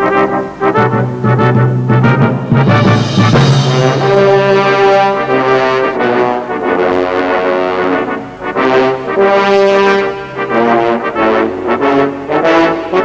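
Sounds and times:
theme music with held notes: 0.0s - 9.2s.

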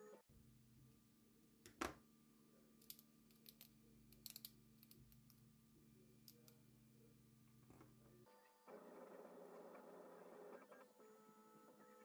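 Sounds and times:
small plastic parts clicking: 2.8s - 5.4s.

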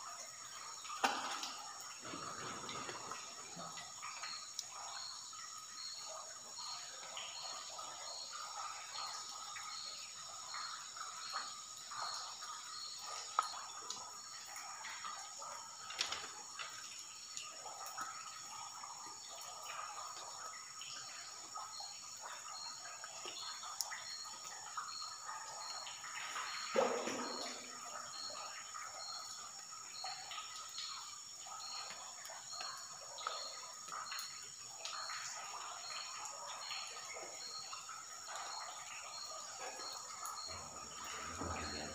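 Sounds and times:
water trickling and dripping: 0.0s - 41.9s
faint chirp: 18.5s - 41.9s.

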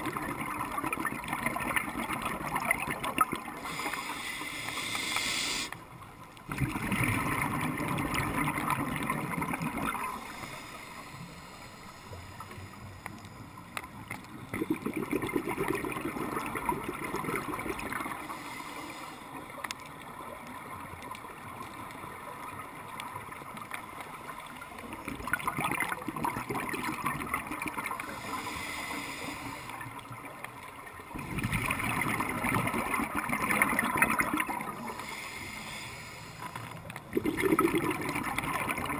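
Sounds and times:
bubbling exhaust underwater: 0.0s - 5.8s, 6.4s - 19.7s, 24.4s - 38.9s
regulator hiss: 3.6s - 5.8s, 10.2s - 13.7s, 18.1s - 19.4s, 28.1s - 29.8s, 34.8s - 36.7s.

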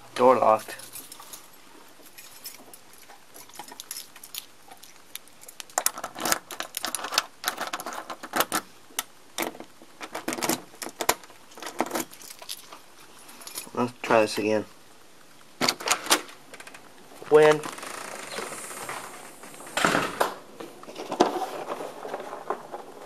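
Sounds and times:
keys jangling on a ring: 2.1s - 2.8s.

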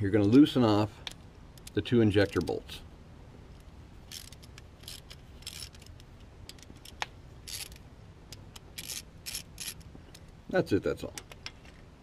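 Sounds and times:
hand ratchet clicking: 4.1s - 10.3s.

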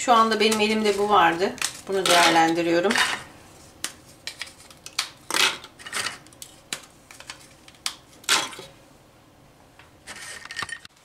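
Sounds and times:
biscuits snapping: 6.3s - 8.1s.

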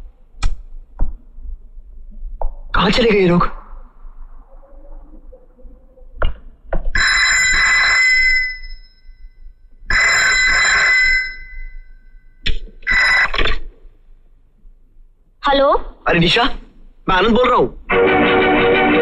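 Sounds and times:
telephone bell ringing: 7.0s - 9.1s, 9.9s - 12.0s, 12.9s - 13.3s.

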